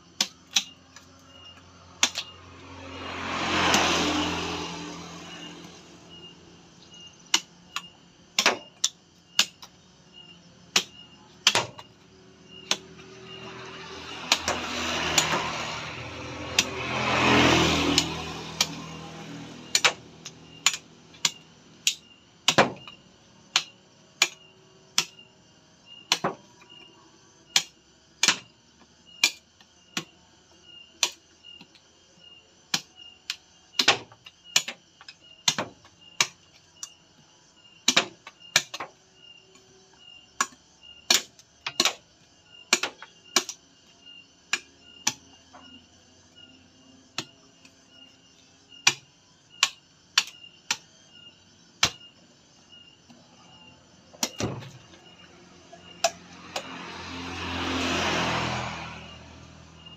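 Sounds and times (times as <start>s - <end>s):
machete chopping coconut shell: 0.2s - 6.0s, 7.3s - 25.3s, 25.9s - 26.9s, 27.5s - 30.2s, 30.9s - 31.8s, 32.7s - 37.0s, 37.8s - 39.7s, 40.4s - 43.7s, 44.5s - 45.4s, 47.1s - 47.8s, 48.8s - 51.0s, 51.8s - 52.1s, 54.1s - 59.0s.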